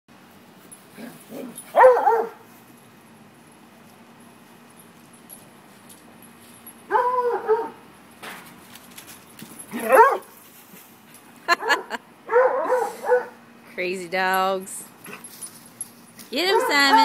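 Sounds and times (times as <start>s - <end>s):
dog yelping: 1.3s - 2.4s, 6.9s - 7.8s, 9.7s - 10.3s, 11.6s - 13.4s, 16.5s - 17.0s.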